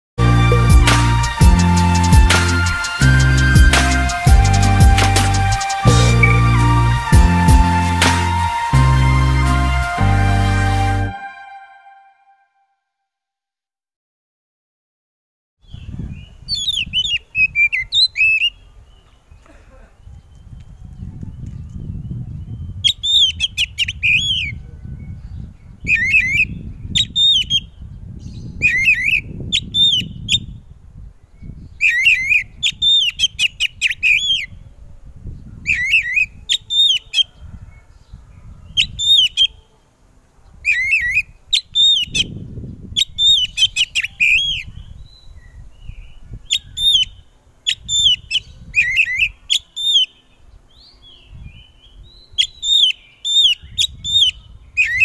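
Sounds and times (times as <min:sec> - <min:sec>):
bird singing whistled phrases: 0:25.9 - 0:27.7, 0:28.4 - 0:30.5, 0:31.8 - 0:34.5, 0:43.0 - 0:50.1, 0:52.4 - 0:55.0.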